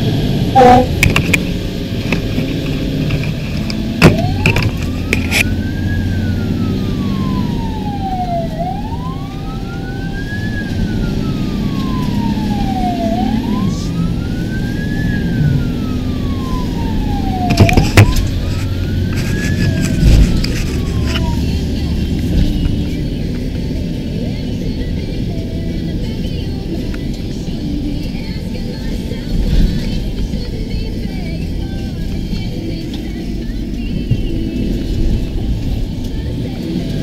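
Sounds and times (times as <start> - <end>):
fire engine siren wailing: 0.0 - 37.0
low engine rumble: 0.0 - 37.0.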